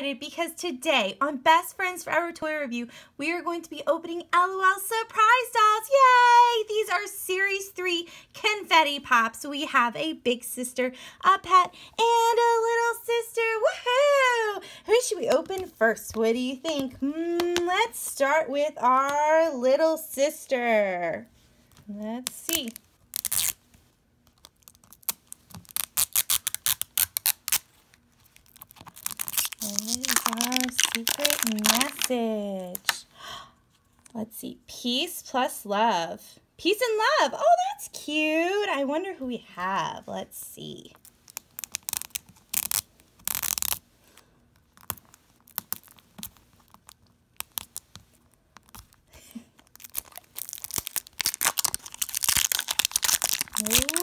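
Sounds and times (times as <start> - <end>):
crackling wrapper: 22.3 - 23.6, 24.2 - 33.0, 40.9 - 54.0
plastic crinkling: 22.3 - 23.6, 24.2 - 33.0, 40.9 - 54.0
plastic tearing: 22.3 - 23.6, 24.3 - 33.0, 40.9 - 54.0
wrapper rustle: 24.5 - 32.1, 44.8 - 54.0.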